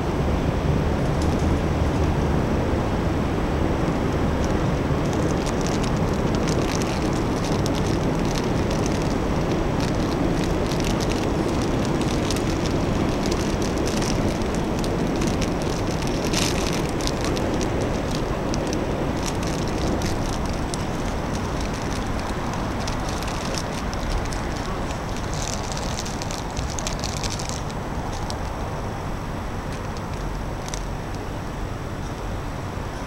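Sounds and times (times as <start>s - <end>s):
low city rumble: 0.0s - 33.0s
faint crackling ticks: 4.4s - 28.7s, 29.7s - 31.2s.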